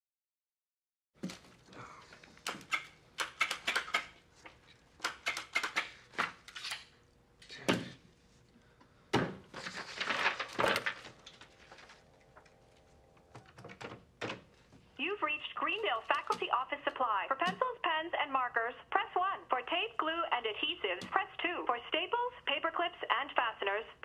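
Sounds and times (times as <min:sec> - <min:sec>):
paper rustling: 0:09.5 - 0:12.6.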